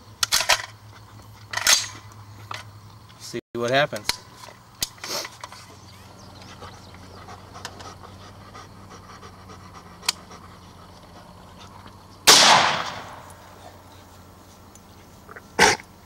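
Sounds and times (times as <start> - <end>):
rifle gunshot: 12.2 - 13.4.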